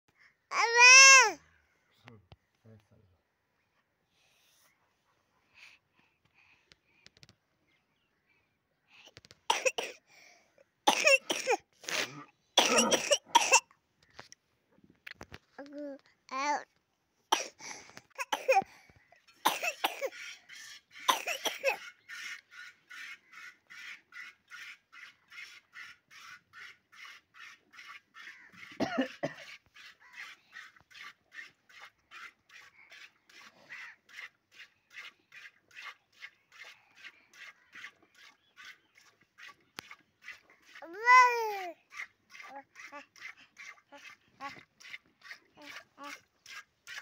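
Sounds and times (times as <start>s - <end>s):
milk squirting into a pail: 21.8s - 40.9s.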